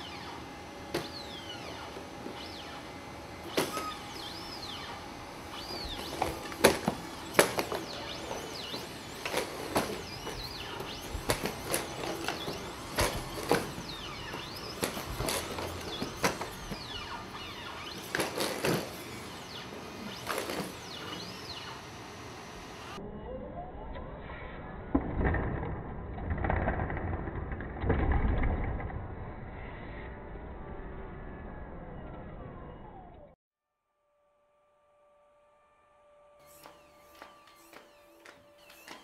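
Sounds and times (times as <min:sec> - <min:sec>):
hydraulic actuators whining: 0:00.0 - 0:23.8, 0:26.4 - 0:33.4, 0:35.6 - 0:39.0
robot feet striking floor: 0:05.6 - 0:21.8.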